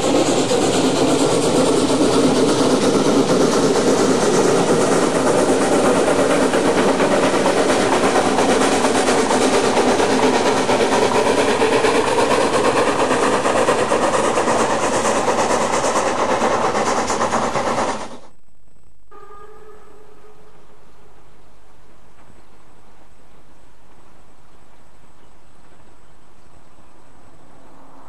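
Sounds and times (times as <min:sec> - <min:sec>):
steam locomotive chuffing: 0:00.0 - 0:18.3
wheel and rail noise: 0:00.0 - 0:18.3, 0:19.2 - 0:28.0.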